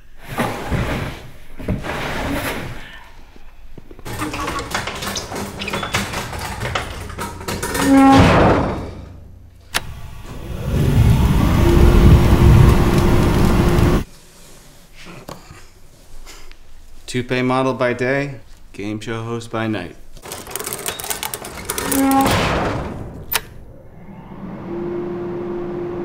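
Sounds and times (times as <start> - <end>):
heavy furnace door clanking: 4.0 - 14.0, 21.3 - 23.8
steady hum: 4.1 - 14.1
burners firing with low rumble: 8.2 - 14.0.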